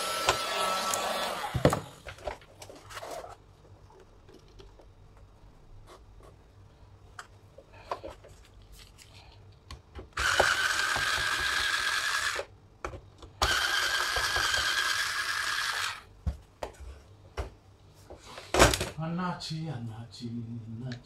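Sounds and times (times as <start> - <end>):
electric screwdriver whine: 0.0 - 1.8, 10.2 - 12.5, 13.4 - 16.0.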